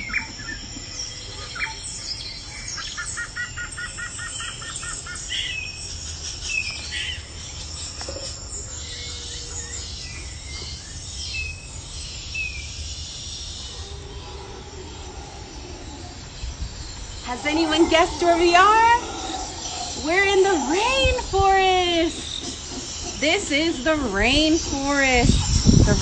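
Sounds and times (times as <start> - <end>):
birds chirping and whistling: 0.0 - 26.0
high insect buzz: 13.0 - 26.0.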